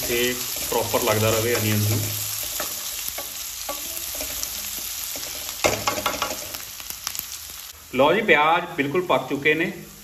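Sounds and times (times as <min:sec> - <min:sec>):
spatula scraping a pan: 0:00.0 - 0:06.7
onions sizzling in hot oil: 0:00.0 - 0:10.0.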